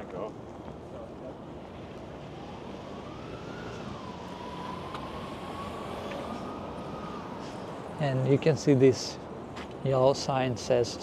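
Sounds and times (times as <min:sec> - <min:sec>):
city street noise: 0:00.0 - 0:11.0
faint siren wailing: 0:01.0 - 0:09.4.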